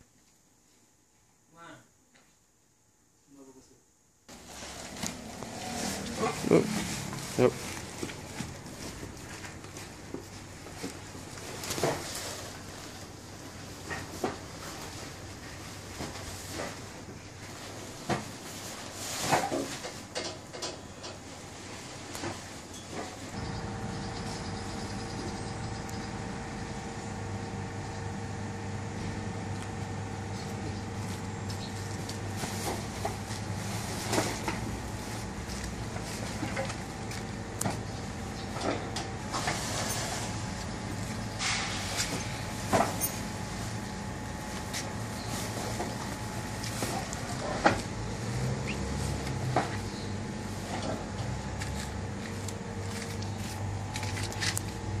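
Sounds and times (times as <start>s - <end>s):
plastic sack crinkling: 4.3s - 19.8s
plastic sacks rustling and knocking: 4.3s - 20.5s, 31.0s - 37.9s, 38.7s - 47.9s
low mechanical hum: 4.3s - 55.0s.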